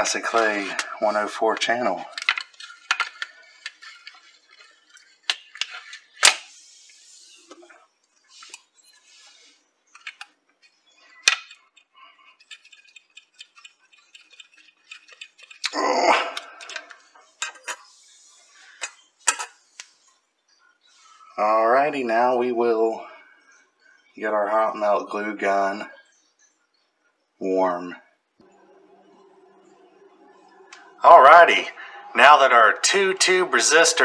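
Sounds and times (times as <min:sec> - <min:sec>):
tools tapping circuit board: 0:10.0 - 0:15.6.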